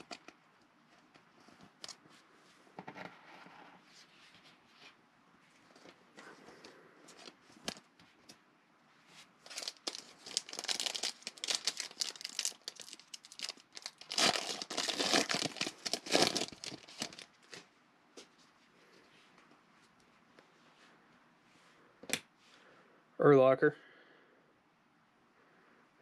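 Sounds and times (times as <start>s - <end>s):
foil wrapper crinkling: 0.0s - 0.3s, 9.4s - 17.6s
handling cards: 9.4s - 17.6s.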